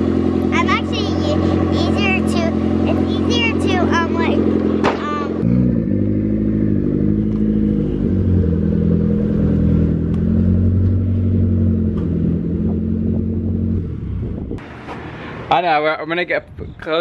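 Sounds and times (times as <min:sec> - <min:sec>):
car engine idling: 0:00.0 - 0:05.4.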